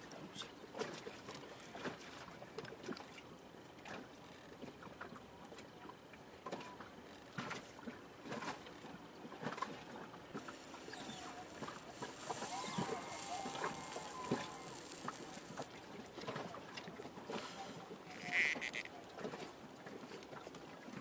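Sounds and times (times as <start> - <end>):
wire strands twisting clicks: 10.4 - 15.7.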